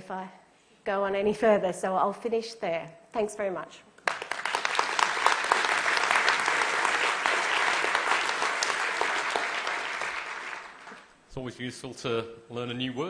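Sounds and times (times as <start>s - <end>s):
audience applauding: 4.0s - 11.2s.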